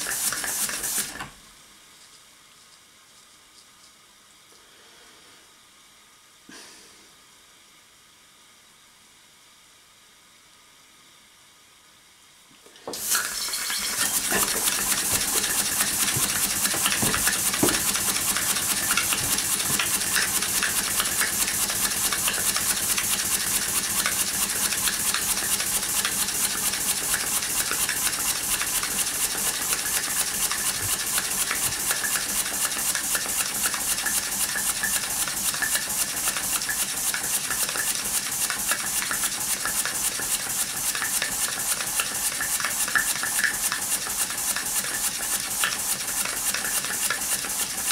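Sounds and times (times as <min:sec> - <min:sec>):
model steam engine chuffing: 0:00.0 - 0:01.1, 0:13.0 - 0:47.9
steam hiss: 0:00.0 - 0:01.2, 0:12.7 - 0:47.9.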